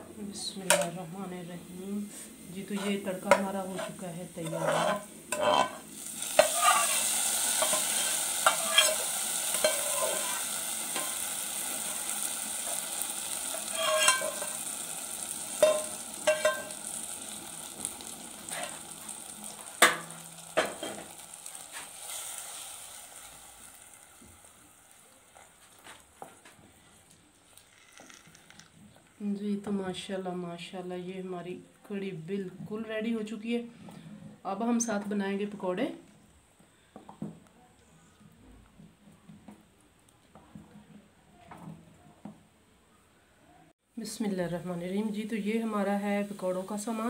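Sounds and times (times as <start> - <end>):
hot oil sizzling: 0.4 - 28.7, 44.2 - 47.0.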